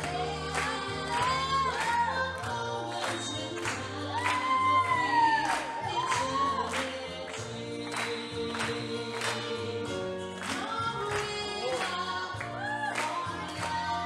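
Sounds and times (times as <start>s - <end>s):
person singing: 0.0s - 14.0s
slow rumba music: 0.0s - 14.0s.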